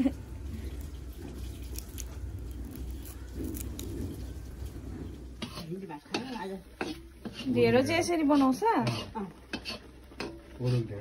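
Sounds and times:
low steady hum: 0:00.0 - 0:08.2
sugarcane chewing crunches: 0:00.6 - 0:04.8.

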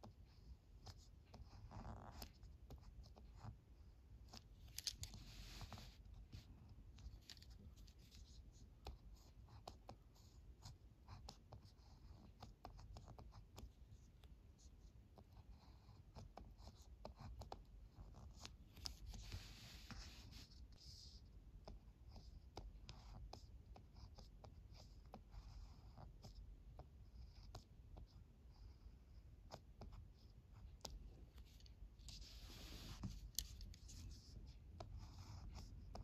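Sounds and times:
pen scratching on paper: 0:00.0 - 0:36.0
pen scrapes: 0:04.3 - 0:06.4, 0:30.8 - 0:36.0.

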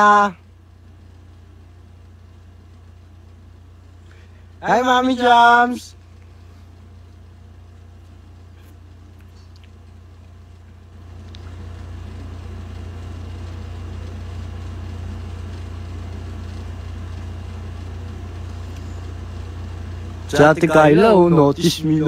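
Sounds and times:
low background hum: 0:00.0 - 0:22.0.

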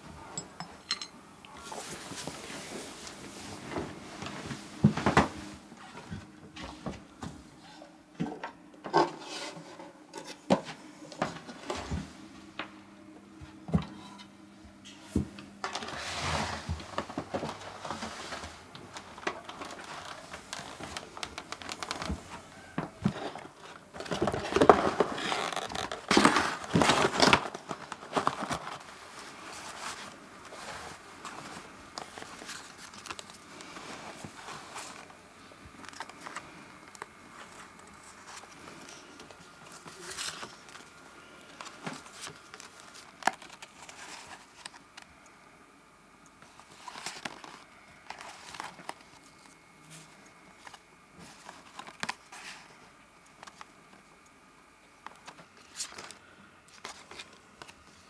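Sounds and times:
paper rustling and crinkling: 0:15.2 - 0:45.2, 0:46.4 - 0:54.0, 0:55.0 - 0:58.0.

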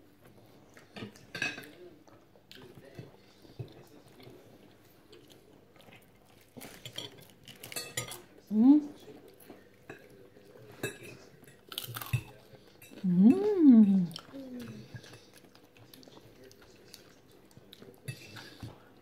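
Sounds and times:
chewing crispy food: 0:00.1 - 0:19.0
plates and cutlery clinking: 0:00.8 - 0:01.9, 0:06.4 - 0:08.3, 0:09.4 - 0:15.4, 0:17.8 - 0:18.8.

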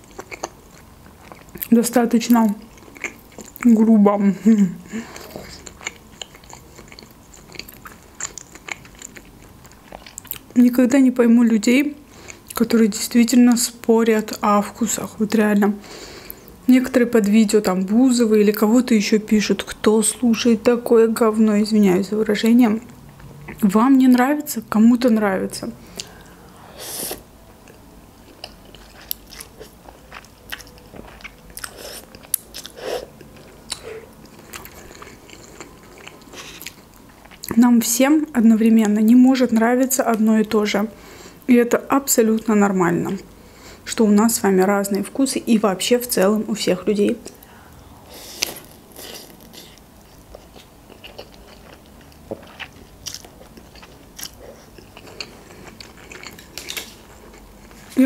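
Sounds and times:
wet chewing with mouth clicks: 0:00.0 - 0:01.7, 0:02.5 - 0:03.9, 0:05.1 - 0:10.6, 0:27.1 - 0:37.6, 0:48.2 - 0:58.0
slurping and chewing noodles: 0:48.1 - 0:58.0.

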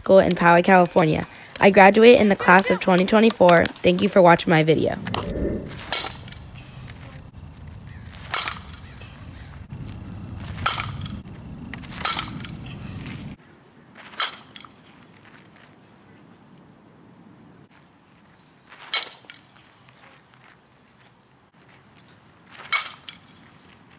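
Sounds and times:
softball striking glove and bat: 0:02.3 - 0:06.5, 0:08.0 - 0:09.1, 0:10.5 - 0:12.7, 0:18.8 - 0:20.0, 0:22.5 - 0:23.7.

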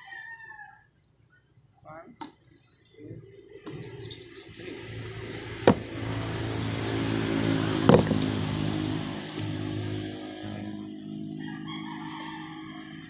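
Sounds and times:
vehicle engine running: 0:03.5 - 0:13.0
sharp knocks: 0:05.6 - 0:05.9.

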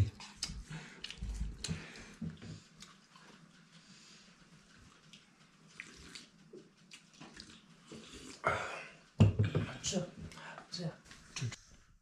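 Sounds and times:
people sipping: 0:05.0 - 0:09.1.

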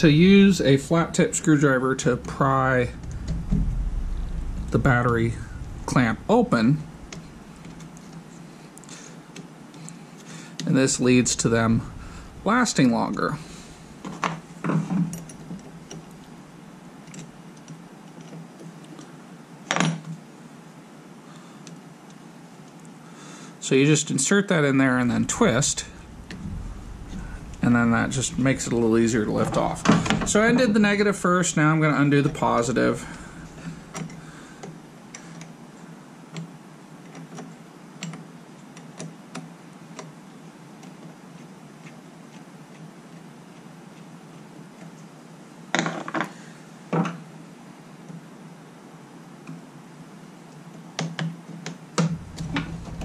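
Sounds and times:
faint low hum: 0:00.0 - 0:09.2, 0:10.2 - 0:17.7, 0:24.5 - 0:35.9, 0:52.0 - 0:53.0.

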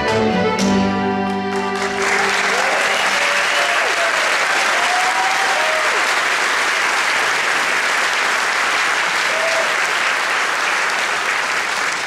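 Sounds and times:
audience applauding: 0:01.4 - 0:12.0
voices cheering: 0:02.0 - 0:06.4, 0:09.0 - 0:11.4.

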